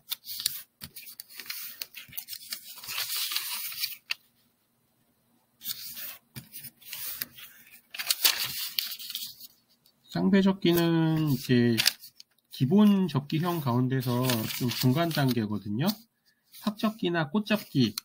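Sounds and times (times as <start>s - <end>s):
paper rustling and crinkling: 0.0s - 4.4s, 5.6s - 9.6s, 10.7s - 12.4s, 13.3s - 18.0s.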